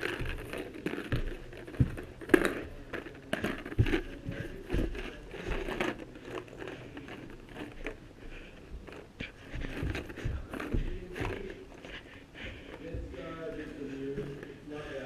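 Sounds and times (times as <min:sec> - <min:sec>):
camera rustling and handling: 0:00.0 - 0:12.1.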